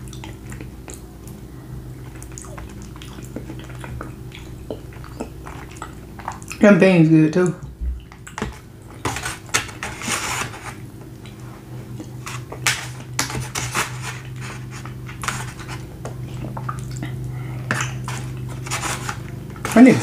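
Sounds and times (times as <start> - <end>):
chewing and mouth sounds: 0.0 - 6.6, 8.0 - 9.0, 11.0 - 12.6, 14.2 - 19.7
steady low hum: 0.0 - 20.0
fork scraping foam container: 9.1 - 10.8, 13.2 - 15.8, 18.0 - 20.0.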